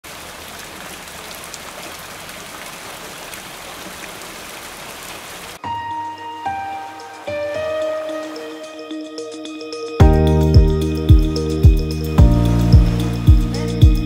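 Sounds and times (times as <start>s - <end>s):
steady rain falling: 0.0s - 5.7s
soft music with held notes: 5.6s - 14.0s.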